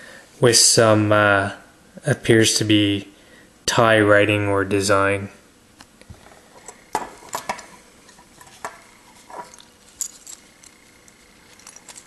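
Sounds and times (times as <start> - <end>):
metal medals clinking: 9.4 - 12.0.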